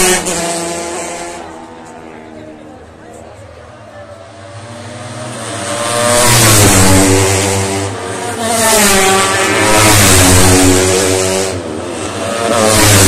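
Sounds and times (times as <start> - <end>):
racing motorcycle engines revving: 0.0 - 13.0.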